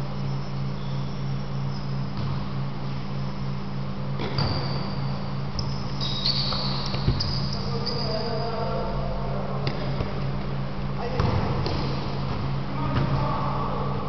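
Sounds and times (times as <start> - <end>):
shoe soles squeaking on court: 0.0 - 2.4, 4.2 - 8.5
steady low hum: 0.0 - 14.0.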